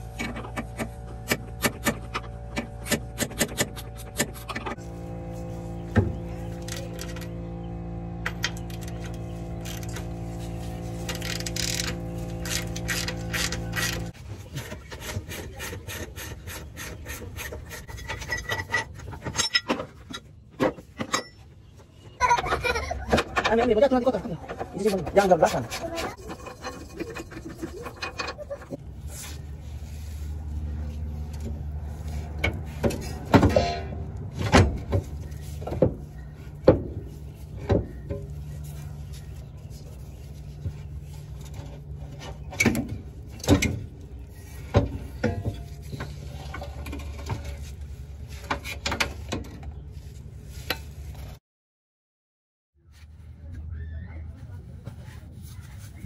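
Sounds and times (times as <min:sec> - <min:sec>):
steady low hum: 0:00.0 - 0:14.9
metal clanks of wrenches: 0:11.0 - 0:21.6, 0:24.5 - 0:28.8, 0:32.4 - 0:34.9.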